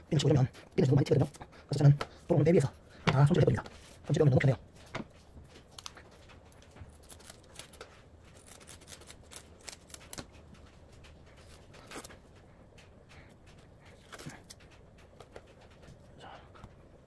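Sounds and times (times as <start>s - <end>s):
scissors snipping: 5.7s - 12.2s.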